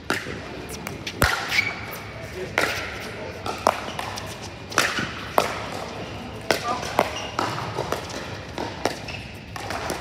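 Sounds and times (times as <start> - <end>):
ball bouncing on hard court: 0.0 - 10.0
paddles hitting plastic ball: 2.5 - 10.0.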